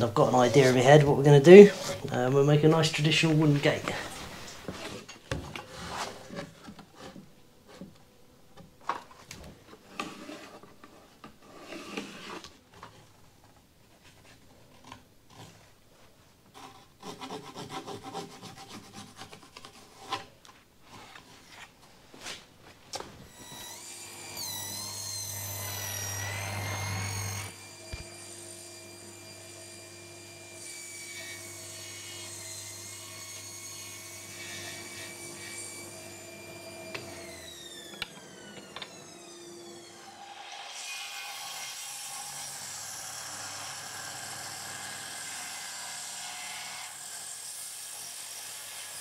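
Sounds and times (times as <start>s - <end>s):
scraping rasping strokes on wood: 0.2s - 2.2s, 16.5s - 20.3s
power tool whining: 23.3s - 30.5s, 32.7s - 40.8s.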